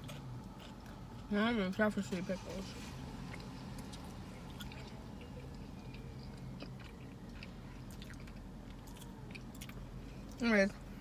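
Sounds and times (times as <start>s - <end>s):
person chewing food: 0.0s - 1.3s, 3.2s - 10.4s.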